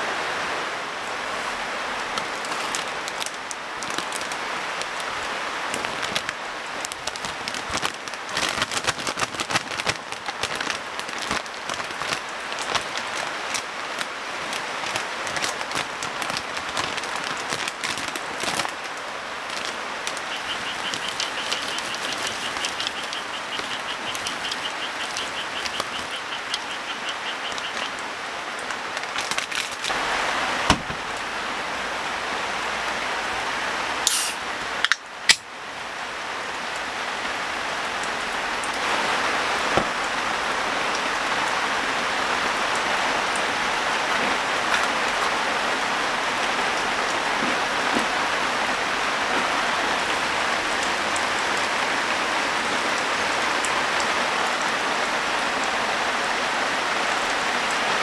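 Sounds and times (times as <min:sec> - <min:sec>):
steady rain: 0:00.0 - 0:58.0
plastic bag crinkling: 0:02.2 - 0:05.0, 0:05.7 - 0:13.6, 0:14.8 - 0:18.9, 0:19.5 - 0:25.8, 0:28.9 - 0:30.0.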